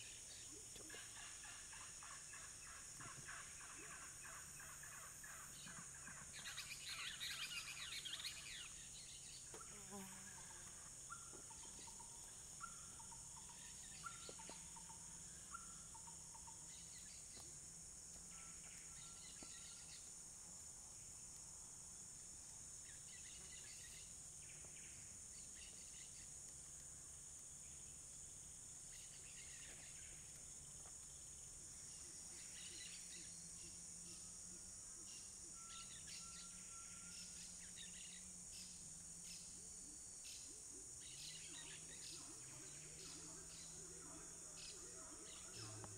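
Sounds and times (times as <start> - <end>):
insects droning: 0.0 - 45.9
bird chirps: 35.1 - 39.5.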